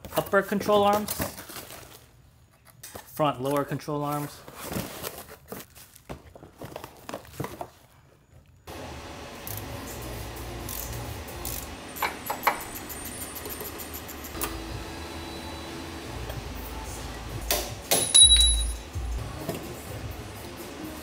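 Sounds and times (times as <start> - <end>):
hard parts clinking and knocking: 12.0 - 14.4, 17.9 - 18.8
faint background music: 14.8 - 21.0
heavy thump with metallic ring: 18.0 - 18.8.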